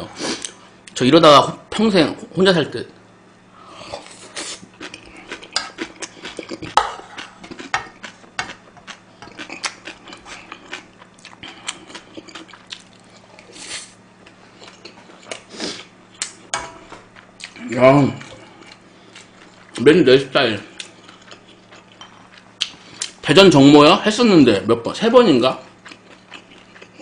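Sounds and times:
faint steady hum: 0:00.0 - 0:27.0
wet chewing: 0:04.4 - 0:13.6, 0:20.7 - 0:23.2, 0:25.6 - 0:27.0.

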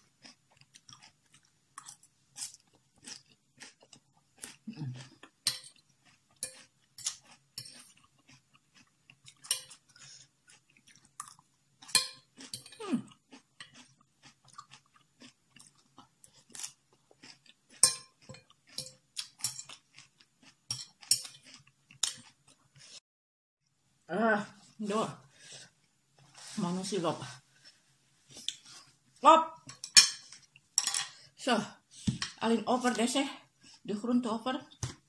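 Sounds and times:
raw vegetables crunching: 0:12.3 - 0:22.9.

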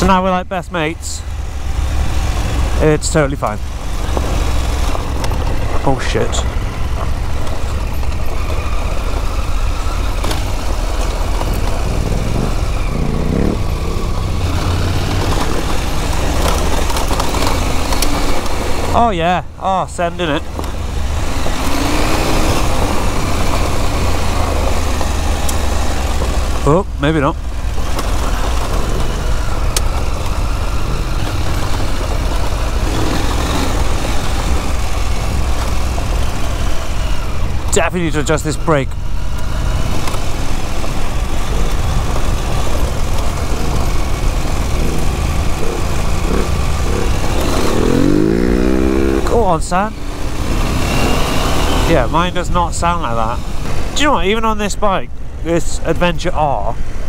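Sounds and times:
motorcycle engine running: 0:00.0 - 0:57.0
road and wind noise: 0:00.0 - 0:57.0
tyres on loose gravel: 0:00.0 - 0:57.0.

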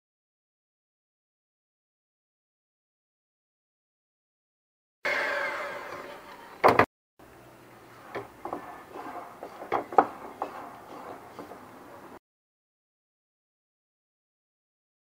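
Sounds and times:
electric hand mixer whine: 0:05.1 - 0:06.3
spatula scraping glass bowl: 0:07.9 - 0:12.2.

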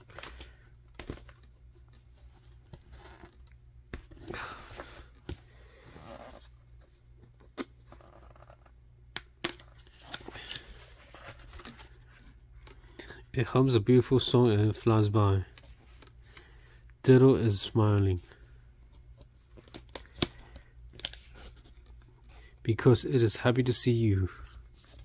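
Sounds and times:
book rustling over crinkled paper: 0:09.8 - 0:12.4
card pages clicking: 0:19.2 - 0:22.1.

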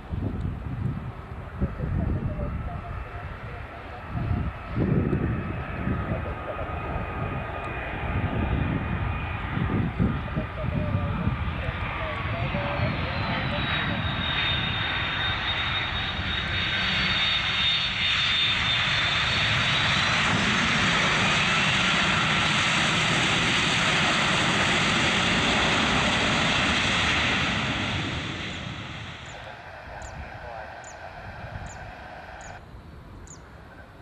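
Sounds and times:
jet engine noise: 0:00.0 - 0:34.0
faint high whine: 0:28.4 - 0:34.0.

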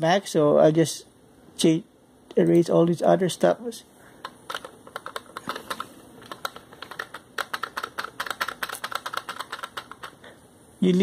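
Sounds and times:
typing on keyboard: 0:04.2 - 0:10.2.

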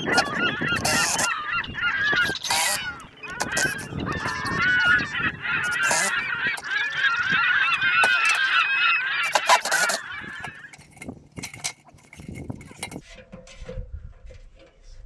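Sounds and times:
geese honking: 0:00.0 - 0:12.0.

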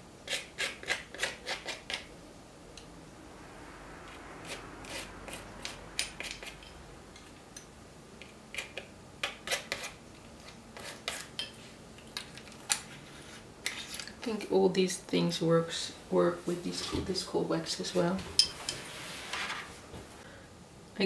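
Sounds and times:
palette knife scraping: 0:00.2 - 0:02.1, 0:04.4 - 0:06.6, 0:08.5 - 0:11.3.

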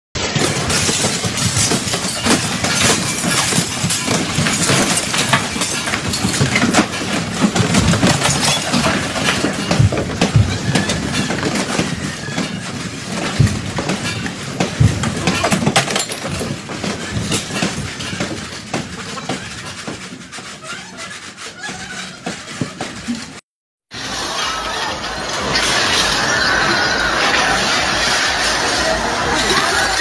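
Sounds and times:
building rattling in earthquake: 0:00.2 - 0:23.4
heavy thumps: 0:00.4 - 0:23.4.

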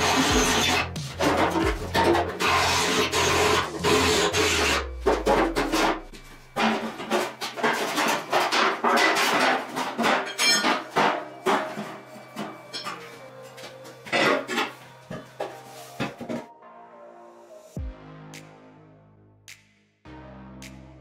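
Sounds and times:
metal knocks and scrapes: 0:00.0 - 0:16.5.

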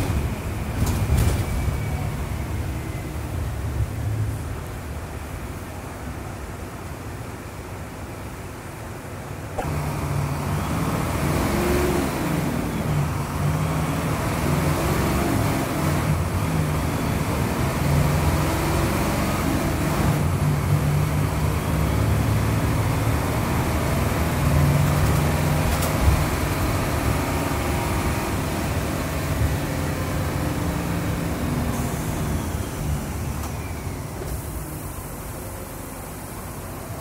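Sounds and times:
diesel engine at high revs: 0:09.6 - 0:37.0.

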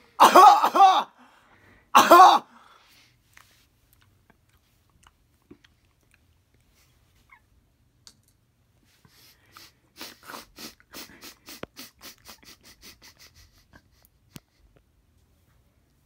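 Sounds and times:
person huffing breathily: 0:09.1 - 0:14.0.

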